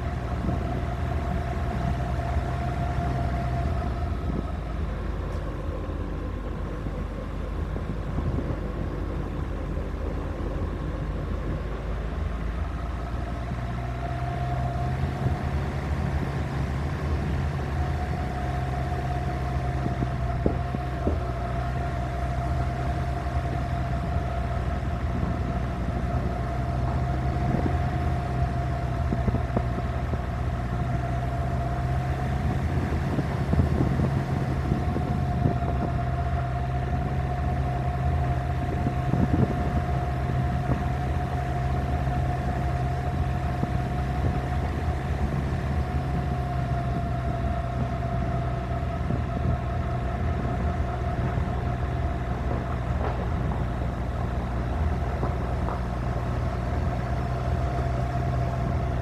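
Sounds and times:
car engine running: 0.0 - 59.0
tyres rolling on dirt road: 0.0 - 59.0
short knocks from rough road: 52.3 - 57.4.

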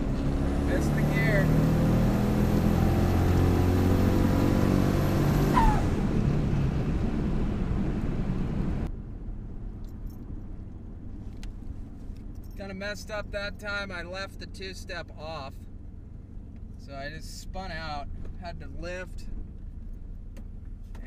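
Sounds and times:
tires spinning: 0.0 - 8.9
truck engine at full throttle: 0.0 - 8.9
steady engine drone: 0.0 - 21.0.

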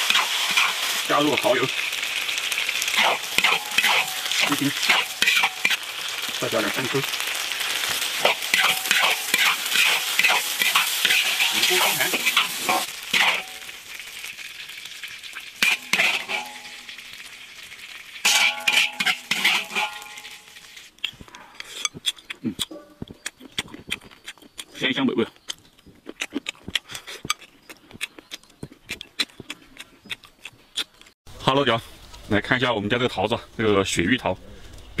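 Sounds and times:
oil sizzling in a wok: 0.0 - 21.0
metal spatula scraping a wok: 2.9 - 5.8, 8.2 - 13.7, 15.6 - 17.0, 18.2 - 20.9.

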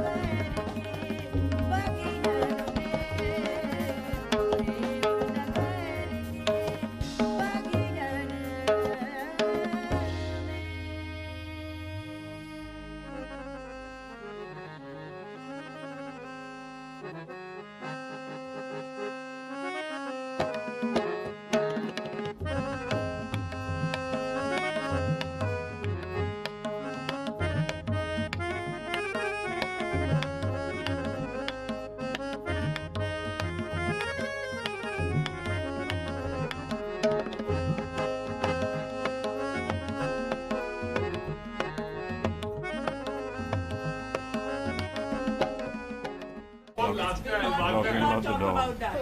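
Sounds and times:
low regular drum beat: 0.0 - 10.5
percussion strikes: 0.0 - 11.4, 20.4 - 47.0.

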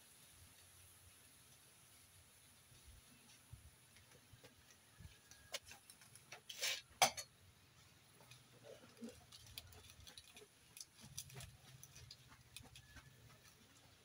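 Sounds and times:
wood fire crackling and popping: 8.0 - 13.6.

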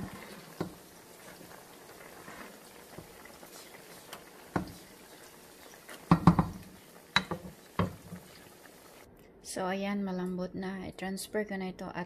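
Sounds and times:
wooden spoon stirring in pot: 0.0 - 9.0
pot bubbling: 0.0 - 9.1
spoon knocking against pot: 6.1 - 8.0.

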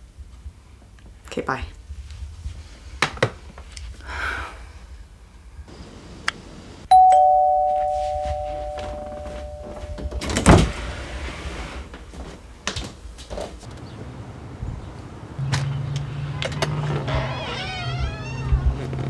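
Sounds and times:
two-tone doorbell chime: 6.9 - 10.7.

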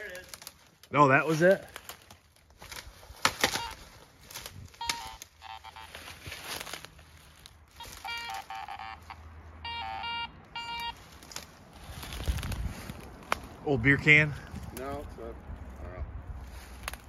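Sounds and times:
dry twigs snapping: 0.0 - 8.5, 10.9 - 13.6, 16.4 - 17.0
metal detector tones: 3.4 - 3.8, 4.7 - 6.4, 7.7 - 11.0.

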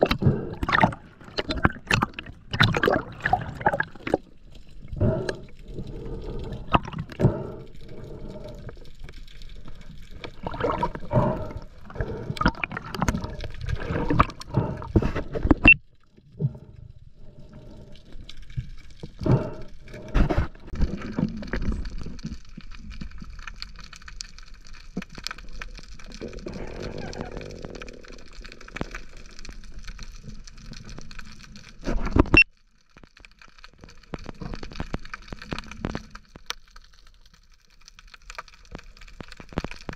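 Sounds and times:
sea water sloshing: 0.0 - 23.9.

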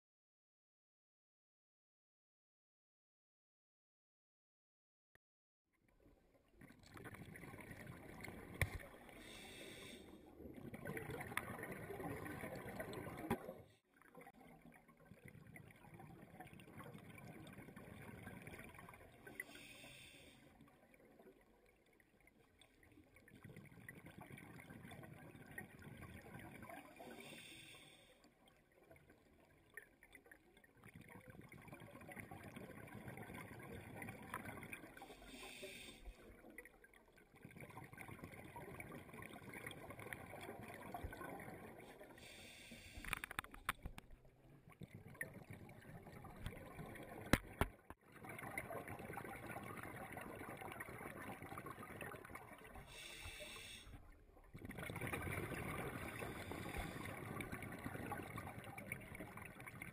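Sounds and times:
exhaled air bubbling: 6.5 - 59.9
regulator inhale hiss: 9.2 - 10.2, 19.4 - 20.5, 27.1 - 28.2, 35.1 - 36.2, 42.2 - 43.3, 52.8 - 54.0, 56.2 - 57.2.

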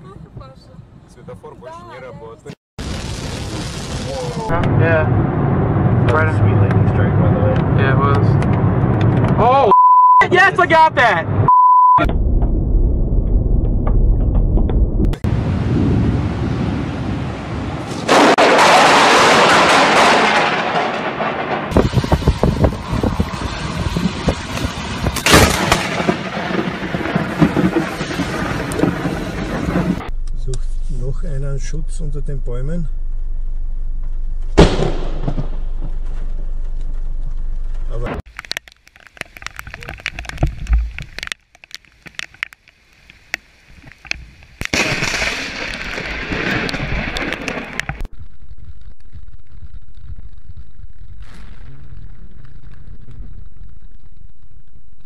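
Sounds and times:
crackling clicks and pops: 7.5 - 9.4, 21.7 - 30.7, 35.2 - 55.0
sharp thunderclap: 12.0 - 30.2, 34.6 - 36.0, 44.7 - 48.1
steady rushing noise: 14.1 - 30.2.

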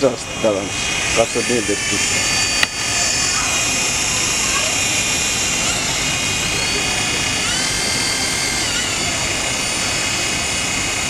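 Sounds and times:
toy helicopter rotors whining: 0.0 - 11.0.

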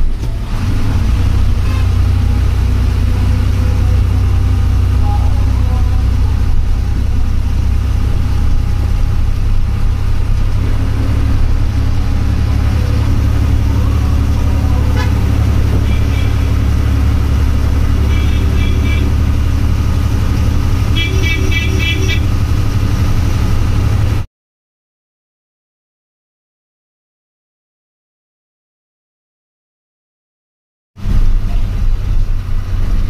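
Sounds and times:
bus engine droning: 0.0 - 24.3, 31.0 - 33.0
rapid beeping horn toots: 14.8 - 16.8, 17.9 - 19.3, 20.9 - 22.3.

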